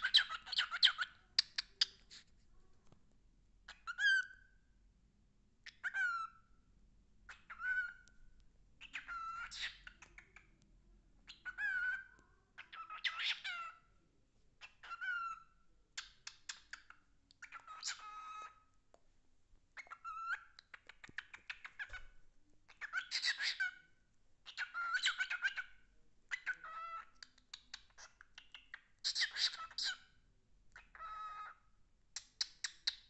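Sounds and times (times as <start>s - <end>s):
cockatiel chirping and whistling: 0.0s - 2.1s, 3.7s - 4.5s, 5.6s - 6.4s, 7.3s - 8.0s, 8.8s - 10.5s, 11.2s - 13.8s, 14.6s - 18.6s, 19.8s - 30.1s, 30.8s - 31.6s, 32.2s - 33.0s.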